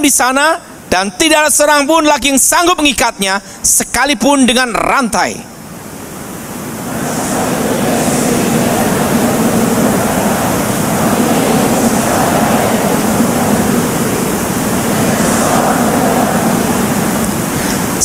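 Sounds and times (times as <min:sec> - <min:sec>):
steady rushing noise: 0:05.6 - 0:18.0.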